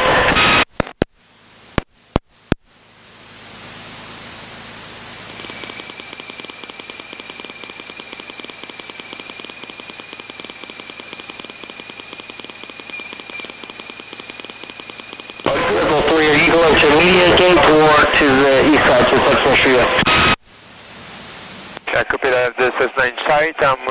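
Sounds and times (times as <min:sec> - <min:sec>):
radio static hiss: 0:00.0 - 0:23.9
steady high whine: 0:00.0 - 0:23.9
fast even pulsing: 0:03.5 - 0:20.1.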